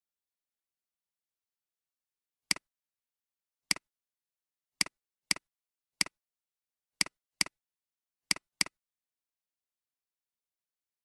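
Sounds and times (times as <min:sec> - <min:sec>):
computer mouse clicks: 0:08.3 - 0:08.8.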